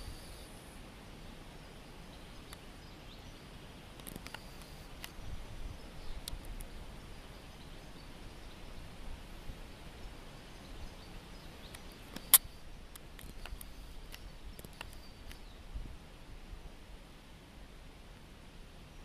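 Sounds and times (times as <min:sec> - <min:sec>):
faint outdoor background noise: 0:00.0 - 0:19.0
faint clicks: 0:03.9 - 0:05.2, 0:06.2 - 0:06.7, 0:11.6 - 0:15.5.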